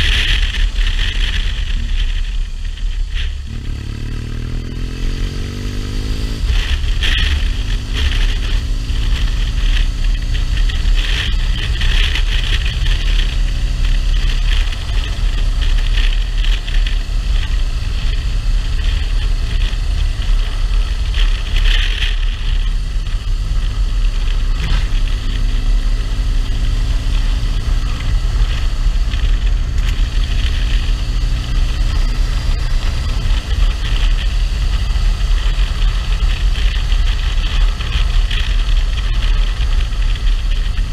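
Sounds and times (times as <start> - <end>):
motorcycle engine running: 0.0 - 40.9
wind rush over microphone: 0.0 - 40.9.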